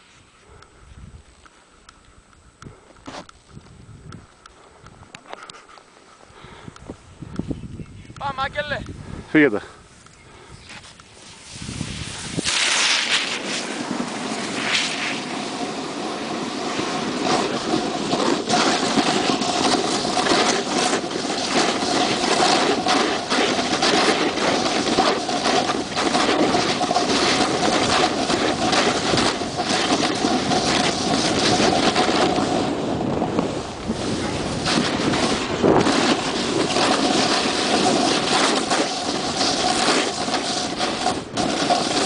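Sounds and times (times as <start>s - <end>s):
wind rushing over microphone: 3.5s - 5.2s, 6.4s - 42.0s
snowboard scraping over snow: 10.7s - 42.0s.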